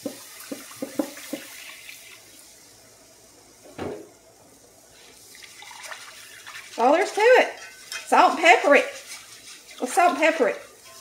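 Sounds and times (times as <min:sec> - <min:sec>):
knock: 0:00.0 - 0:01.5
milk pouring into a skillet: 0:05.0 - 0:11.0
whisk clicking against pan: 0:06.4 - 0:11.0.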